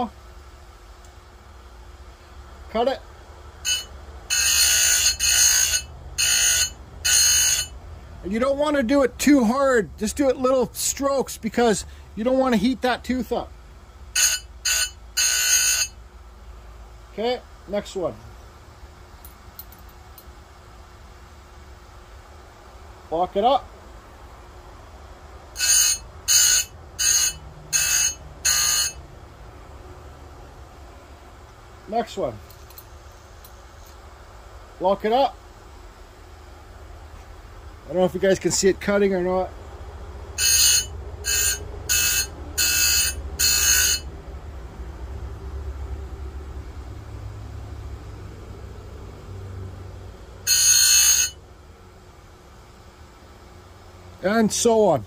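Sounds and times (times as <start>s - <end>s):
grinder low hum: 0.0s - 16.9s, 35.6s - 55.0s
grinder motor humming: 3.7s - 7.7s
grinding wheel on chain tooth: 3.7s - 7.7s, 25.6s - 29.0s, 40.4s - 44.1s.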